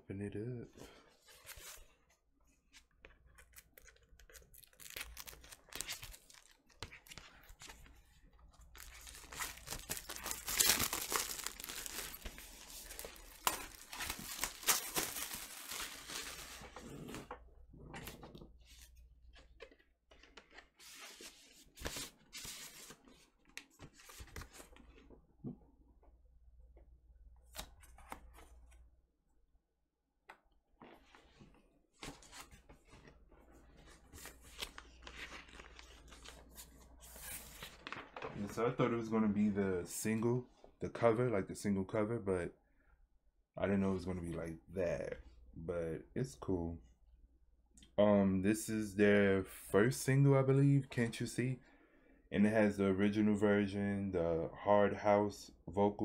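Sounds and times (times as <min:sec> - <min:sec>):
packaging tearing and crinkling: 0:04.0 - 0:07.1, 0:08.7 - 0:16.6
paper sleeve rustling: 0:08.6 - 0:17.0.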